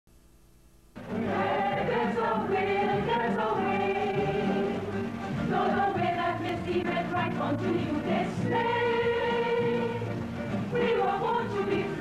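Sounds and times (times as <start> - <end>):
theme music with choir singing: 1.0 - 12.0.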